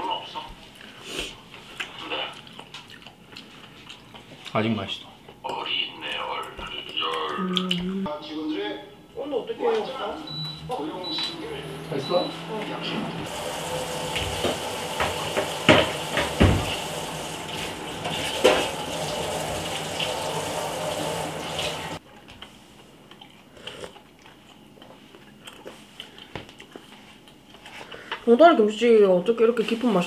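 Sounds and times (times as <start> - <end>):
tap water running into sink: 13.3 - 22.0
dishes knocking: 14.1 - 16.8, 18.0 - 18.8.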